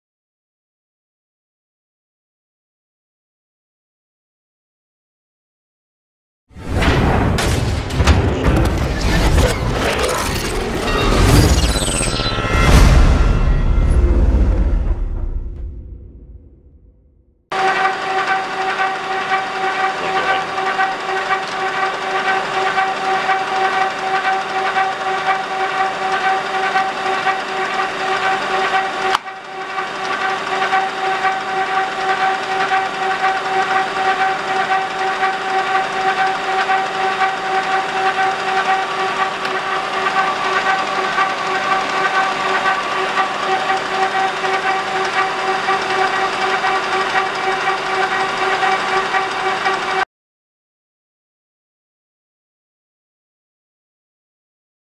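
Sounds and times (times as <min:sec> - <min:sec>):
lathe whining: 0:17.5 - 0:50.0.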